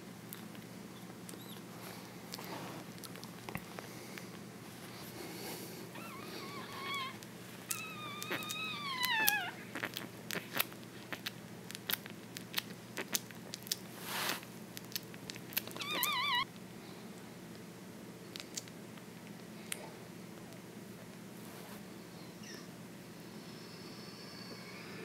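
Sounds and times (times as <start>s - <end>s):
puppy whimpering: 1.0s - 1.6s, 5.9s - 10.0s, 15.6s - 16.5s, 22.2s - 22.7s.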